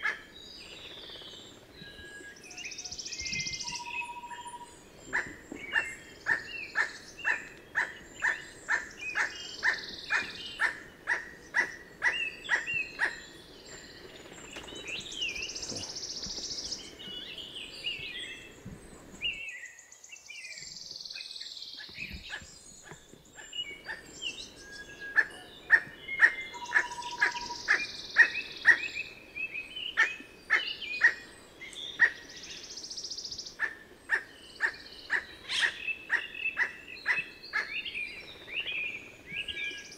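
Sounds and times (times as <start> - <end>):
bird barking calls: 0.0 - 1.3, 3.2 - 13.4, 20.6 - 29.1, 29.8 - 32.4, 33.5 - 38.0.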